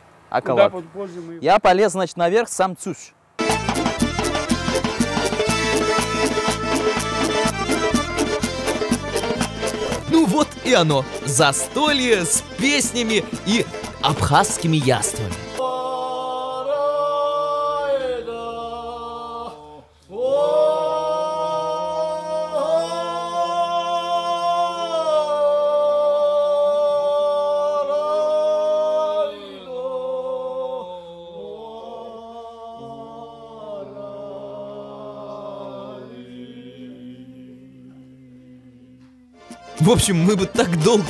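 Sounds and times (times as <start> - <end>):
men singing a cappella: 15.4 - 39.2.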